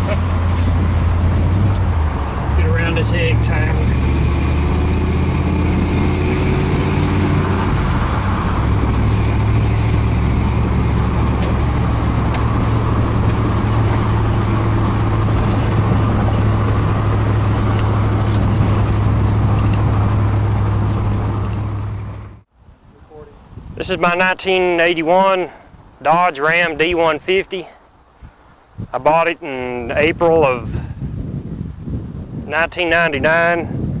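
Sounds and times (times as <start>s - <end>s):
truck engine droning from cab: 0.0s - 22.4s.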